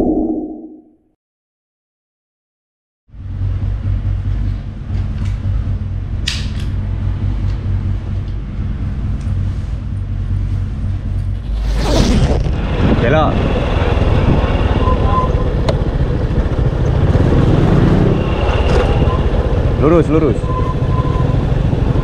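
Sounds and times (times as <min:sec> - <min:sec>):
low rumble: 0:03.1 - 0:21.0
short whoosh: 0:11.3 - 0:13.3.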